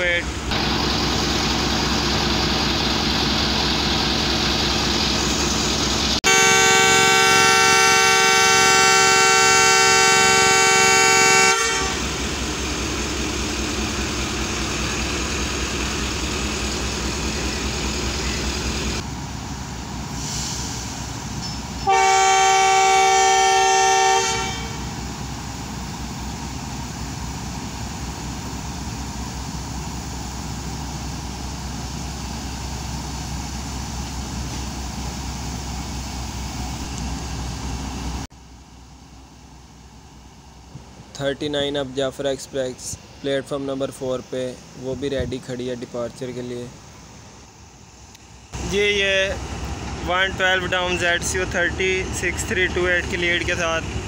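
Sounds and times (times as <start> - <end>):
locomotive idling: 0.0 - 54.0
air horn blasts: 6.2 - 12.2, 21.8 - 24.9.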